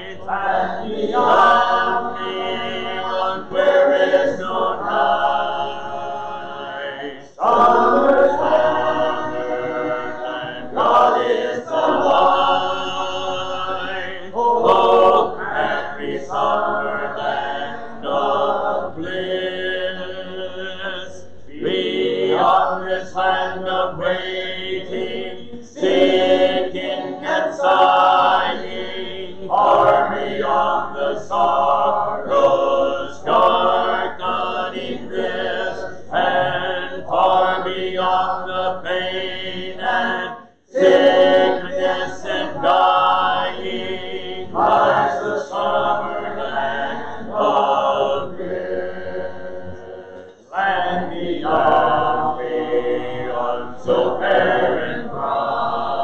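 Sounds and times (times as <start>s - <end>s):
congregation singing a hymn: 0.0s - 56.0s.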